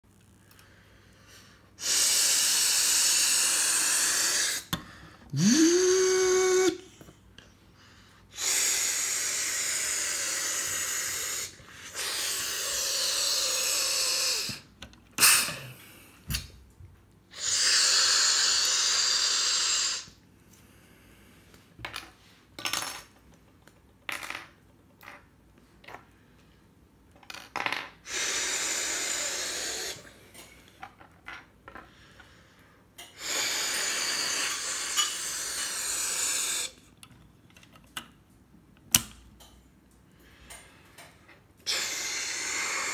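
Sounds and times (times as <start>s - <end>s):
hissing air bursts: 1.8s - 4.7s, 8.3s - 14.6s, 28.1s - 30.1s, 33.2s - 36.8s, 41.7s - 42.9s.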